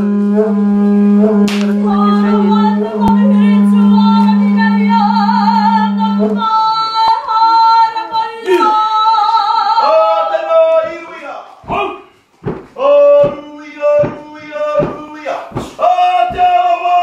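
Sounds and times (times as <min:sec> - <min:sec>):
low held drone: 0:00.0 - 0:07.2.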